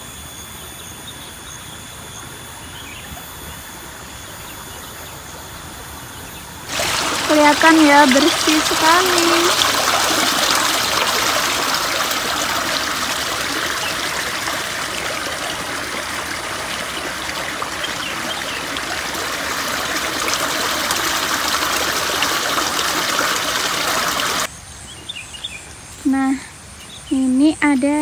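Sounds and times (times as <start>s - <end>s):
water flowing in a concrete channel: 6.7s - 24.5s.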